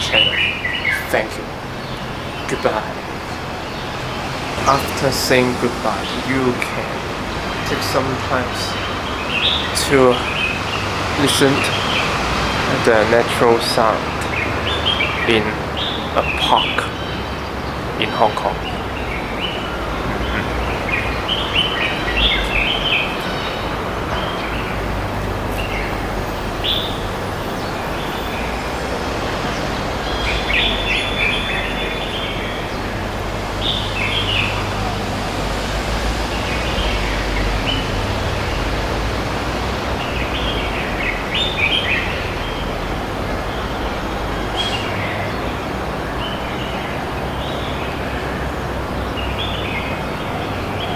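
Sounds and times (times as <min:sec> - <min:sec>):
background hiss: 0:00.0 - 0:50.9
birds chirping: 0:00.0 - 0:50.9.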